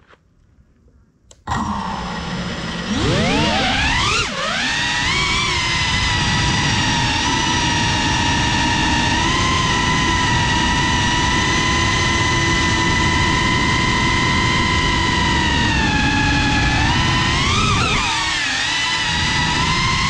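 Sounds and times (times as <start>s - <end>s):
quadcopter motors whining: 1.3s - 20.0s.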